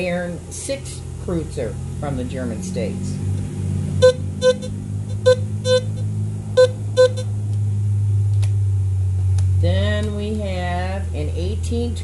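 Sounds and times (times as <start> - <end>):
steady low hum: 0.0 - 12.0
metal detector beeps: 4.0 - 6.0, 6.6 - 7.3.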